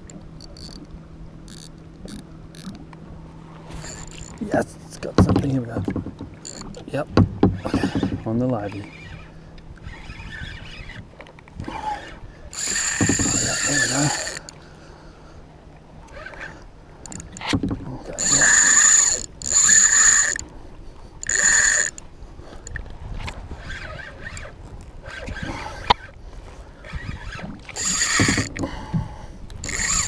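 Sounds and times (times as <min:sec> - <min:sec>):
fishing reel clicking: 0:00.0 - 0:00.9, 0:01.5 - 0:02.8, 0:03.8 - 0:04.6, 0:06.4 - 0:06.9, 0:07.6 - 0:11.1, 0:12.0 - 0:14.6, 0:16.0 - 0:17.5, 0:18.1 - 0:20.5, 0:21.2 - 0:26.2, 0:26.8 - 0:28.6, 0:29.5 - 0:30.0
fishing reel drag screeching: 0:01.5 - 0:01.7, 0:03.7 - 0:04.5, 0:06.4 - 0:06.8, 0:07.6 - 0:11.1, 0:11.7 - 0:14.6, 0:16.1 - 0:17.5, 0:18.1 - 0:20.4, 0:21.2 - 0:22.0, 0:23.5 - 0:26.1, 0:26.8 - 0:28.6, 0:29.6 - 0:30.0.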